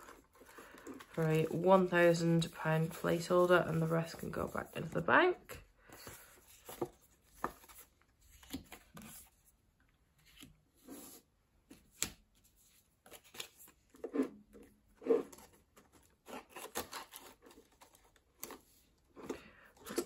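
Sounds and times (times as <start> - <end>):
paper and plastic crinkling: 0.0 - 5.0.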